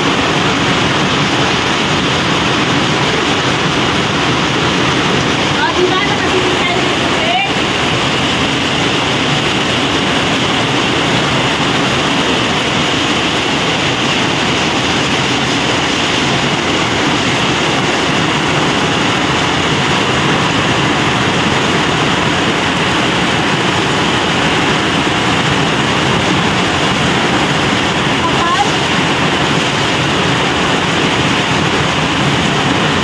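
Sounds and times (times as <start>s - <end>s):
heavy rain on concrete roof: 0.0s - 33.0s.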